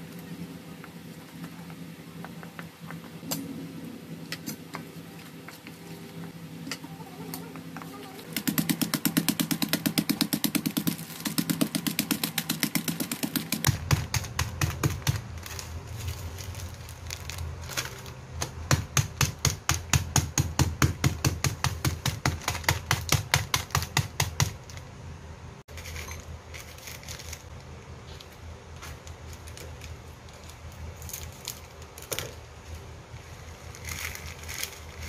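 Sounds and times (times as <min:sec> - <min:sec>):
cookies being crushed pounding: 0:08.3 - 0:24.9.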